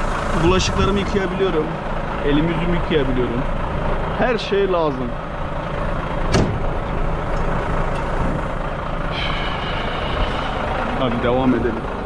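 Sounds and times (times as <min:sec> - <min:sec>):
diesel truck engine idling: 0:00.0 - 0:12.0
brief high tone: 0:09.1 - 0:11.8.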